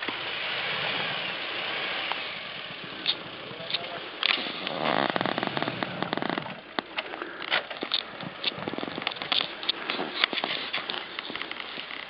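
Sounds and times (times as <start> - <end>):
car engine revving: 0.0 - 6.6.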